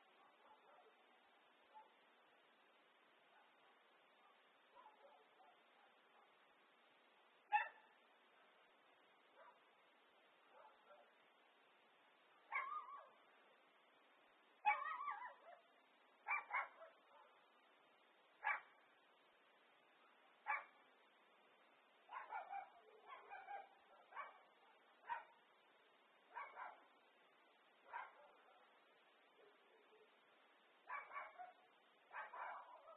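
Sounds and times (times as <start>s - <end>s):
dog barking: 0.0s - 2.0s, 3.3s - 6.4s, 7.5s - 8.0s, 9.3s - 9.7s, 10.5s - 11.2s, 12.5s - 13.3s, 14.6s - 17.4s, 18.4s - 18.8s, 20.4s - 20.8s, 22.1s - 25.4s, 26.3s - 26.9s, 27.8s - 28.8s, 30.8s - 32.9s.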